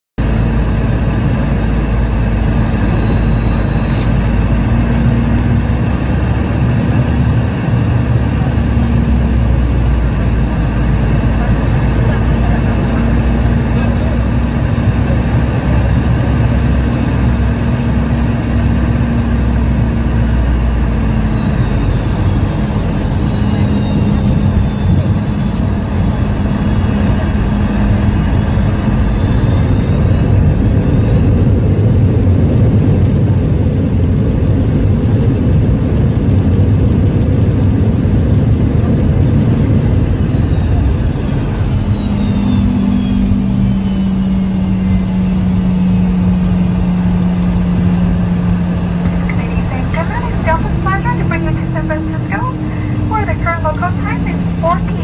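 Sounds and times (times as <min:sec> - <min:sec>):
engine drone and airflow rumble: 0:00.2 - 0:55.0
high jet engine whine: 0:00.2 - 0:55.0.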